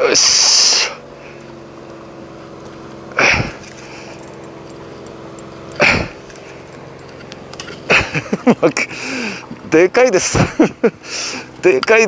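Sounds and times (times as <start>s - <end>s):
low hum: 0.0s - 12.0s
forceful exhalations: 3.2s - 4.2s, 5.8s - 6.2s, 8.9s - 9.6s, 11.0s - 11.5s.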